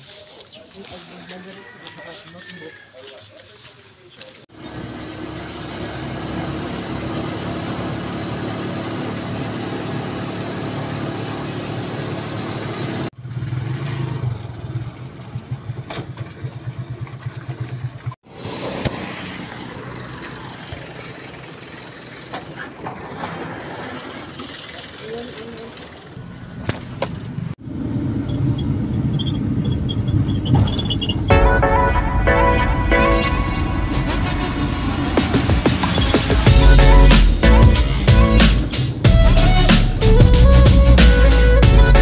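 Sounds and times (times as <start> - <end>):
road noise: 0.0 - 42.0
motorcycle engine running: 4.5 - 18.2.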